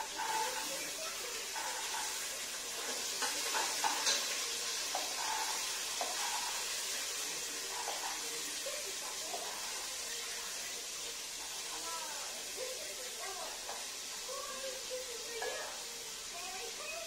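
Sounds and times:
spoon scraping: 0:00.0 - 0:00.8, 0:01.5 - 0:06.9
oil sizzling: 0:00.0 - 0:17.0.

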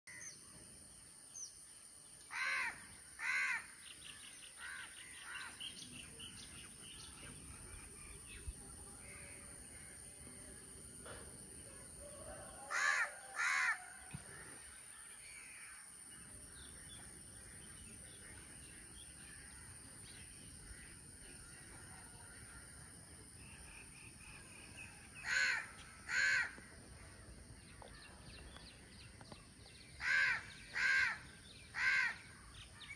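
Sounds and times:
crow cawing: 0:02.3 - 0:03.8, 0:04.6 - 0:05.4, 0:12.6 - 0:14.0, 0:25.2 - 0:26.7, 0:30.0 - 0:32.3.

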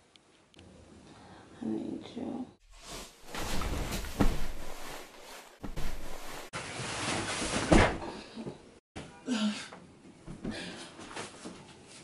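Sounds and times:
bed sheets rustling: 0:02.6 - 0:08.0.

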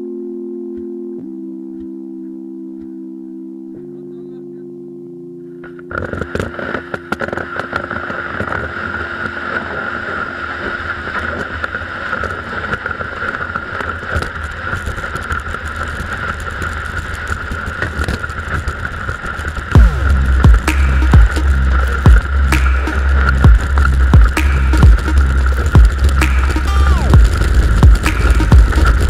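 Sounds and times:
toboggan runners scraping on snow: 0:05.9 - 0:29.0
loud low thumps: 0:19.8 - 0:29.0.

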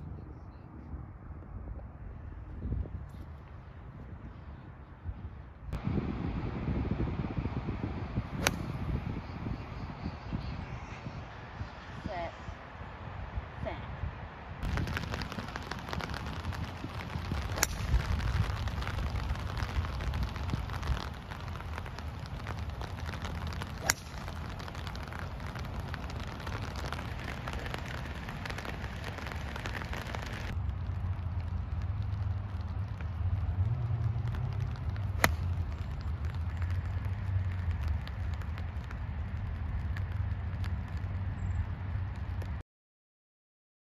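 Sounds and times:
low outdoor rumble: 0:00.0 - 0:42.6
golf club striking ball: 0:08.4 - 0:08.8, 0:17.3 - 0:18.6, 0:23.2 - 0:25.6, 0:35.2 - 0:35.5.

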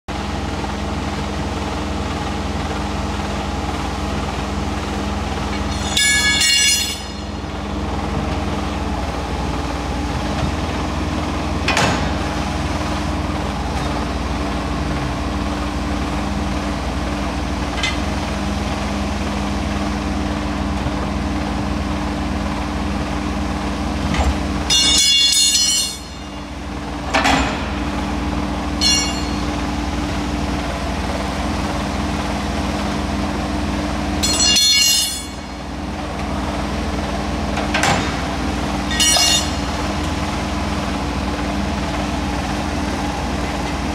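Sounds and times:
tyre changer machine humming: 0:00.1 - 0:43.9
metal clanks: 0:05.5 - 0:07.4, 0:24.1 - 0:26.4, 0:28.8 - 0:29.6, 0:34.2 - 0:35.4, 0:38.9 - 0:40.2
loud harsh noises: 0:05.7 - 0:07.4, 0:38.9 - 0:40.0.

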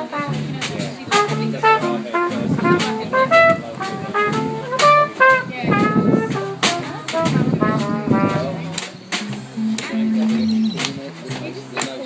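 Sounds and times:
trumpet melody: 0:00.0 - 0:11.1
drum kit with cymbals: 0:00.0 - 0:12.0
plucked double bass: 0:00.0 - 0:12.0.

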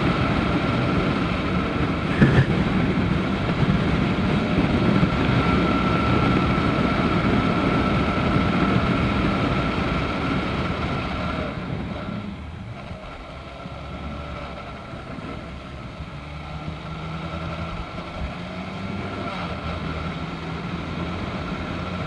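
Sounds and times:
wind rush: 0:00.0 - 0:12.4
motorcycle engine running: 0:00.0 - 0:22.0.

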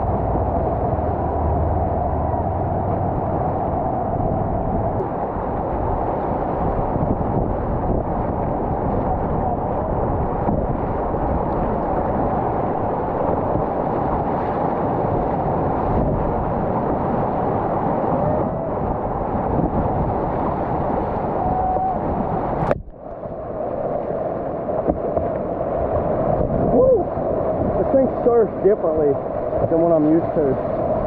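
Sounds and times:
whitewater rapids roaring: 0:00.0 - 0:31.0.

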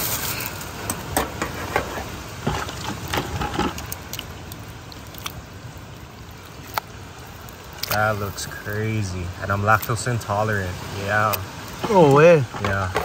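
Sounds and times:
clicks and crackles: 0:00.0 - 0:08.8, 0:09.6 - 0:10.2.

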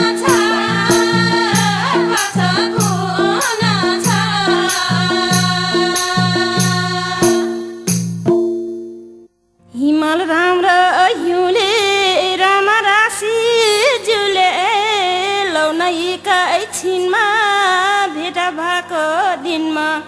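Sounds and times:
person singing ornamented vocal line: 0:00.0 - 0:07.8
held accompanying chord: 0:00.0 - 0:09.3.

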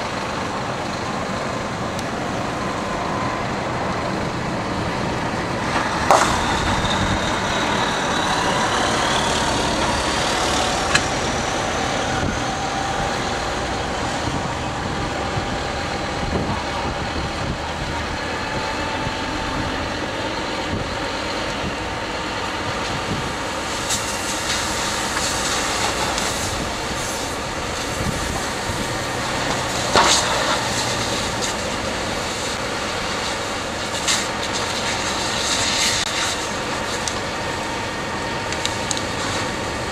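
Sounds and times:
heavy vehicle engine running: 0:00.0 - 0:39.9
sharp cracks and pops: 0:32.3 - 0:37.4, 0:38.4 - 0:39.5.

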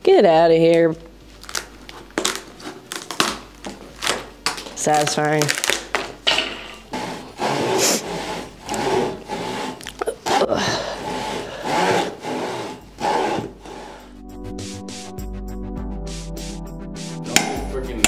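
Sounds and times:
bow saw rasping through log: 0:06.7 - 0:14.1.

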